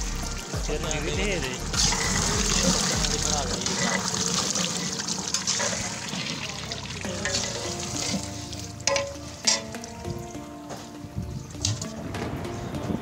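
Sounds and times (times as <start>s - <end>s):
meat sizzling in pot: 0.0s - 10.2s.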